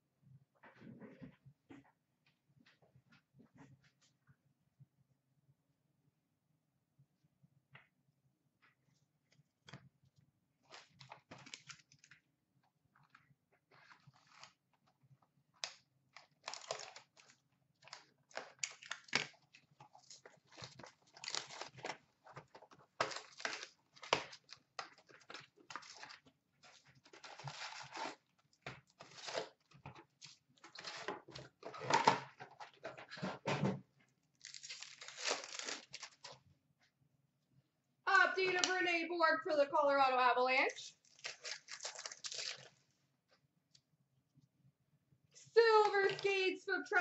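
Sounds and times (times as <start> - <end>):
packs rustling and crinkling: 16.2 - 28.2
cardboard tearing: 16.2 - 28.3, 28.9 - 29.6, 34.4 - 36.4, 41.0 - 42.8.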